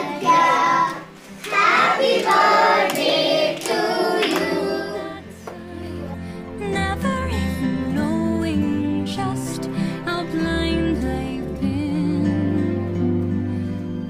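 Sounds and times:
children singing together: 0.0s - 6.1s
music track: 0.0s - 14.0s.

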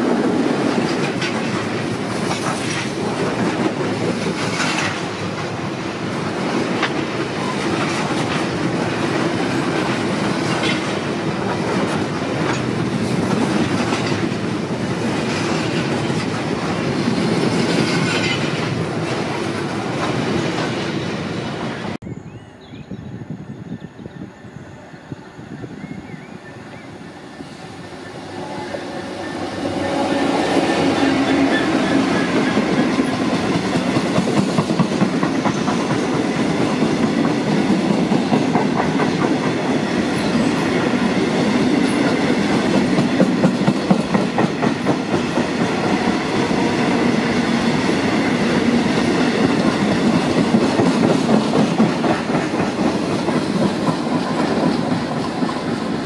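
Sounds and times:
wheels clacking over rail joints: 0.4s - 20.9s, 30.4s - 56.0s
diesel locomotive engine: 24.6s - 56.0s.

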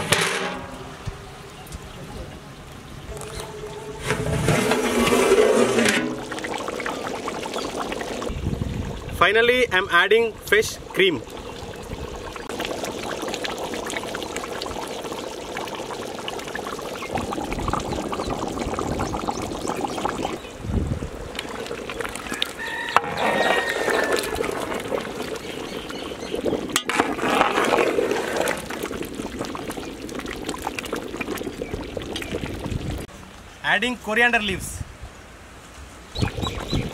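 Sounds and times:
thick gravy sloshing: 3.3s - 9.2s, 10.6s - 33.1s
cream pouring into pot: 21.4s - 32.5s.

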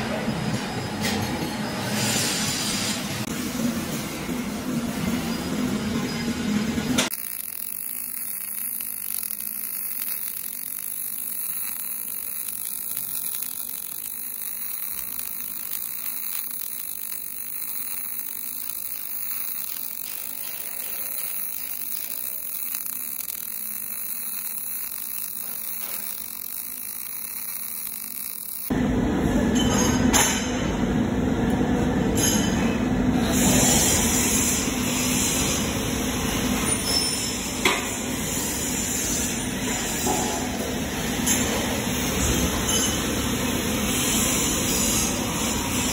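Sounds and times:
welding arc hiss: 6.9s - 28.7s, 33.2s - 45.9s.

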